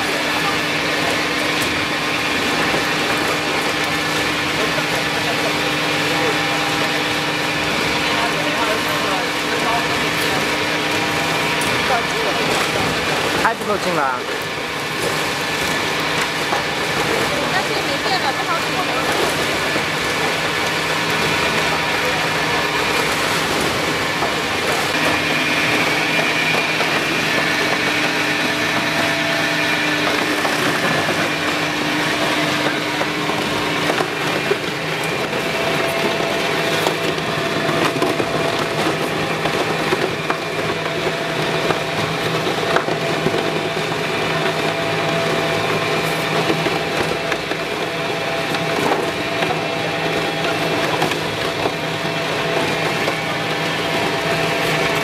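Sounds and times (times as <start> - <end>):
machine motor hum: 0.0 - 55.0.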